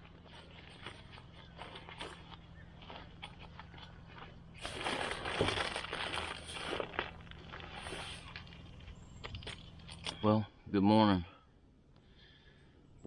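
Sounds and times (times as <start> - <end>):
fabric bag rustling: 0.1 - 8.8.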